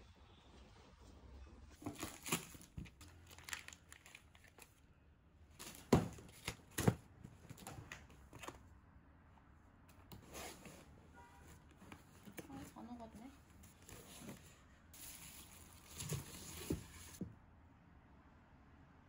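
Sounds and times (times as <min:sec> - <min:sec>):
plastic food packs crinkling: 0:01.8 - 0:04.9.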